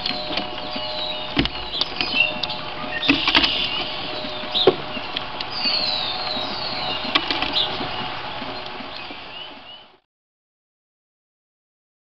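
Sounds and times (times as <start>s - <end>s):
songbirds chirping: 0.0s - 10.0s
steady hiss and hum: 0.0s - 10.0s
birds knocking on wooden feeder: 1.3s - 5.2s, 6.9s - 8.0s.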